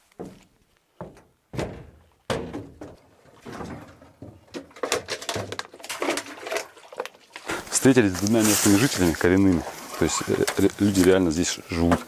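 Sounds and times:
light knocks and clatter: 0.2 - 6.3
heavy thunk: 1.0 - 4.4.

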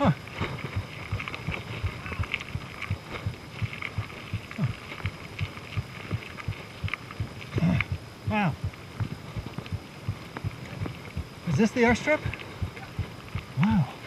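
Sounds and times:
bike tyres thumping on dirt trail: 0.0 - 8.0.

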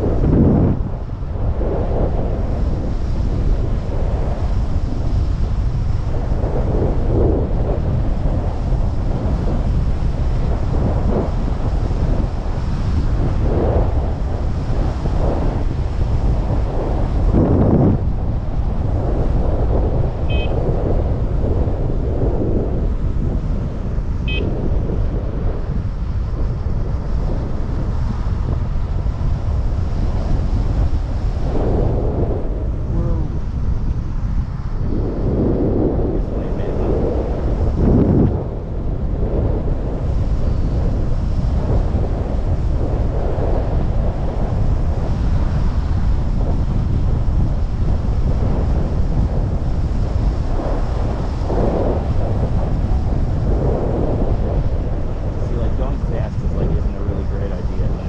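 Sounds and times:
wind buffeting microphone: 0.0 - 58.0
short high beep: 20.3 - 20.6, 24.3 - 24.6.

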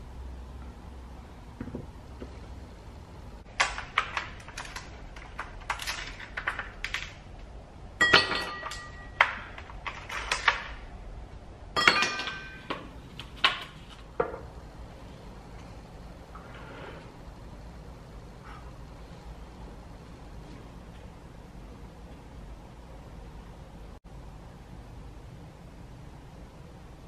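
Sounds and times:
ice cubes cracking loose: 3.6 - 7.2.

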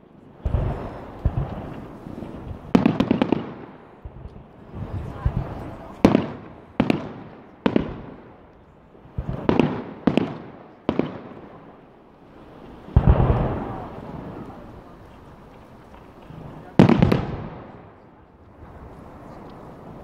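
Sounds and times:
firework bangs: 0.4 - 20.0.

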